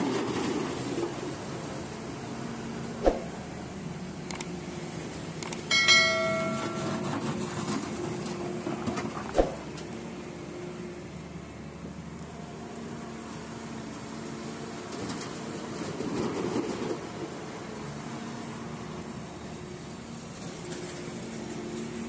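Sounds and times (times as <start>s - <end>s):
high ringing squeal: 5.7s - 7.6s.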